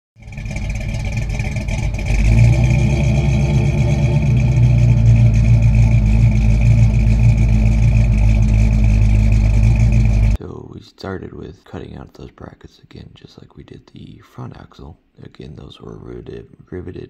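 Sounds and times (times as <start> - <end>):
steady high whine: 0.2 - 10.4
vehicle engine running: 0.2 - 10.4.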